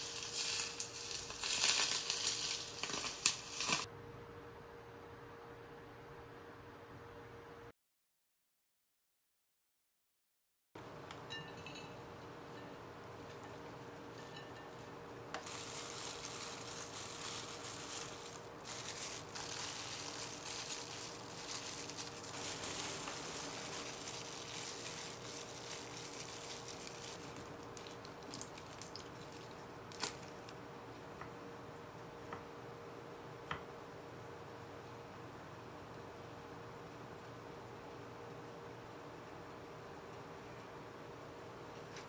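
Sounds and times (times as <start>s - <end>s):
plastic glove and packaging rustling: 0.0s - 3.9s, 13.2s - 30.6s.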